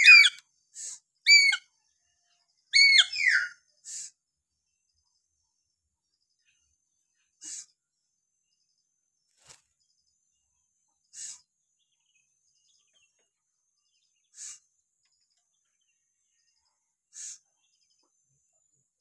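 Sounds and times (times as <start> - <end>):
parrot giving harsh calls: 0.0 - 0.4, 1.3 - 1.6, 2.8 - 3.5.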